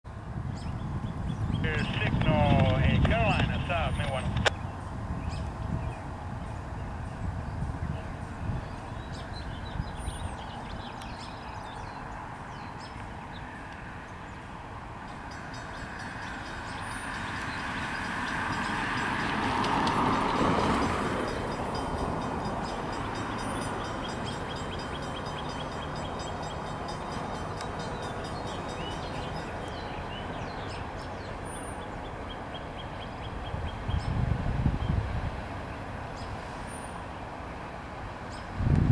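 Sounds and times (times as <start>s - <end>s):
birds chirping: 0.5s - 34.2s
passenger train rumble: 1.6s - 8.6s.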